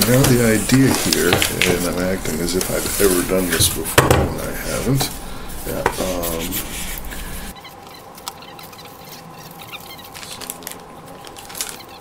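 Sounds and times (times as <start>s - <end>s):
plastic packet crinkling: 8.1s - 12.0s.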